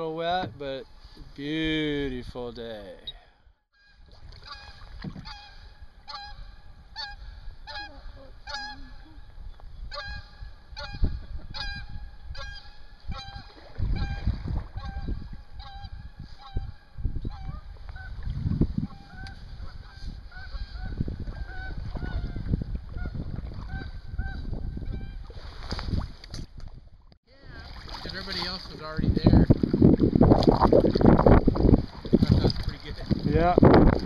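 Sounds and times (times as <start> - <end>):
geese honking: 3.8 - 9.1, 9.9 - 14.2, 14.8 - 16.7
wind rumbling on microphone: 4.1 - 34.0.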